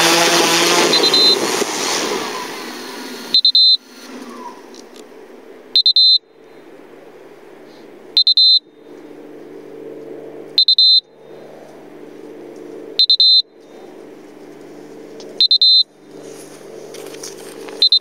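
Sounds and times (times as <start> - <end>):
low steady hum: 0.0 - 18.0
piezo alarm buzzer beeps: 0.1 - 1.5, 3.3 - 3.8, 5.8 - 6.3, 8.2 - 8.7, 10.6 - 11.1, 13.0 - 13.5, 15.4 - 16.0, 17.8 - 18.0
footsteps rustling grass: 13.6 - 17.9.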